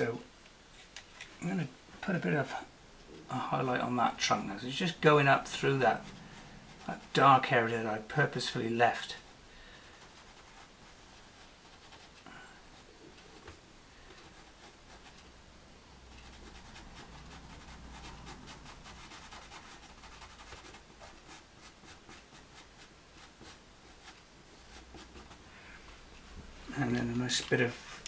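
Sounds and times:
pastel pencil scratching on paper: 9.8 - 12.9, 16.1 - 25.4.

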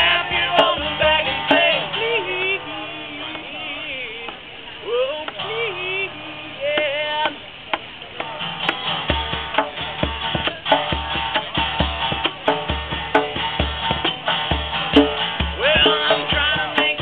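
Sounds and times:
hand drum beat: 0.0 - 1.9, 8.2 - 17.0
acoustic guitar strumming: 0.0 - 17.0.

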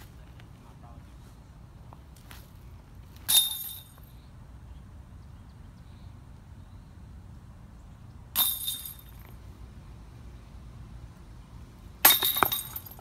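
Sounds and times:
discs striking metal chains: 3.3 - 4.1, 8.4 - 9.3, 12.0 - 13.0.

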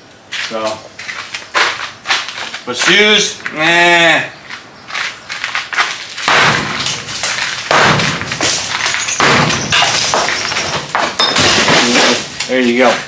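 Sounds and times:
rubble clattering down: 5.8 - 12.6.

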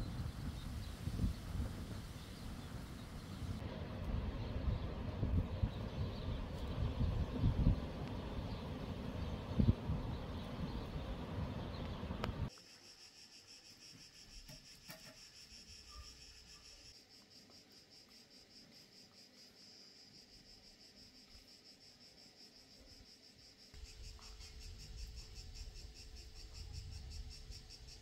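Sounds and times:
wind on microphone: 0.0 - 12.5
crickets chirping: 0.0 - 28.0.

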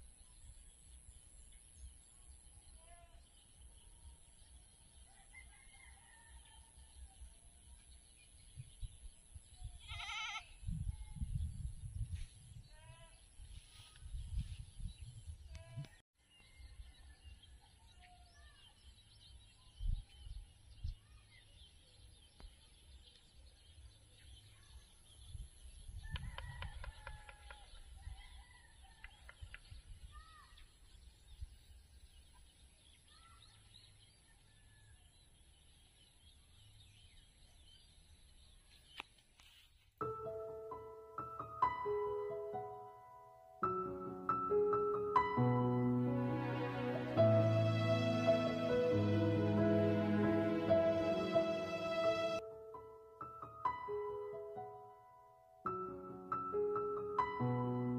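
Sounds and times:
wind on microphone: 8.4 - 16.0, 25.2 - 28.4
music: 40.0 - 57.9.

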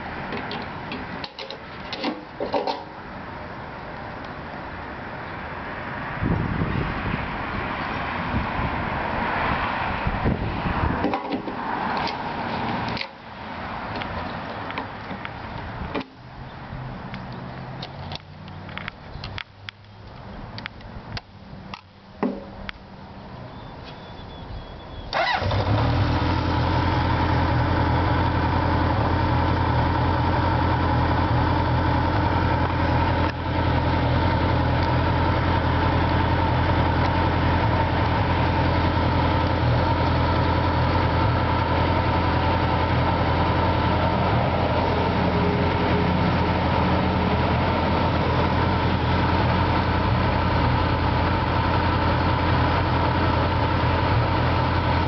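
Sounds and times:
motorcycle engine idling: 25.2 - 55.0.

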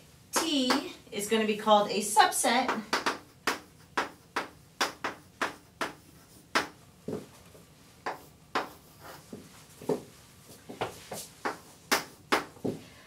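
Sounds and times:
chalk tapping on blackboard: 2.9 - 6.8, 8.0 - 10.0, 11.1 - 12.6.

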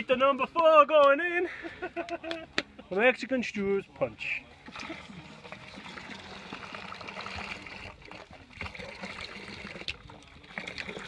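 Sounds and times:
juice pouring into liquid: 4.6 - 11.0.

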